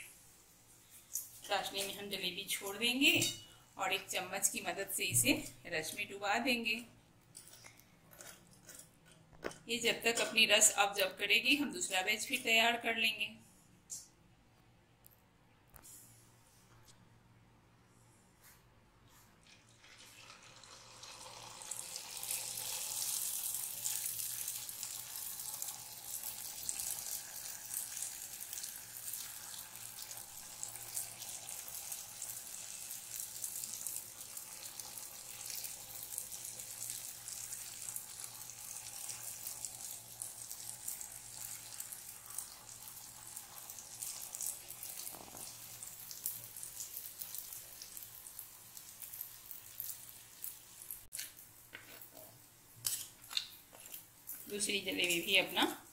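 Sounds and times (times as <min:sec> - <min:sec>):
batter sizzling in hot oil: 0:19.7 - 0:52.1.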